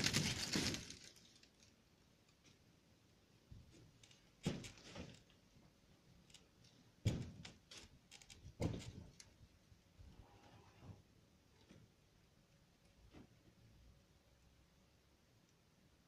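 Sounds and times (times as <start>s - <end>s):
heavy thuds of frame pieces: 7.0s - 7.7s.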